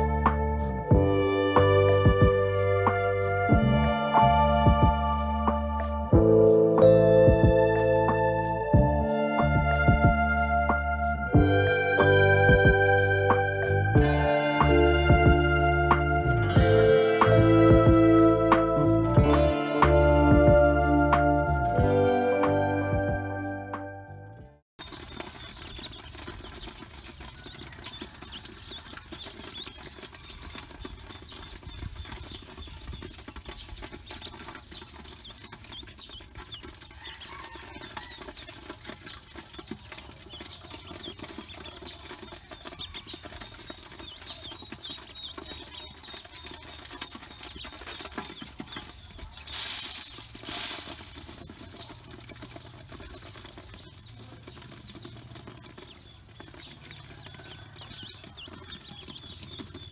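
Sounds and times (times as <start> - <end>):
ducklings peeping: 24.8 - 59.9
loud rustling: 24.8 - 59.9.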